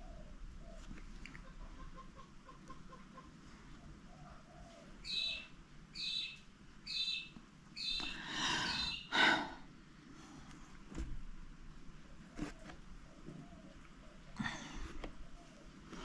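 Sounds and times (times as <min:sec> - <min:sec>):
bird chirping: 0:04.2 - 0:09.1.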